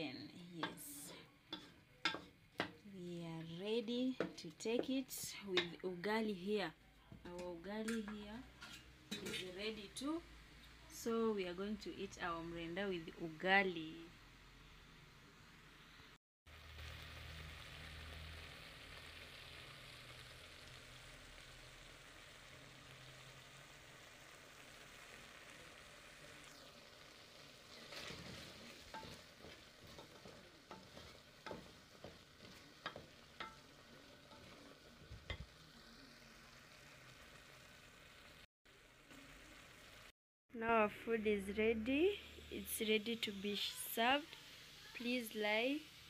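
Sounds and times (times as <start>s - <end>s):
faint steady sizzle: 0.0s - 46.0s
spoon knocking metal pot: 1.6s - 2.8s.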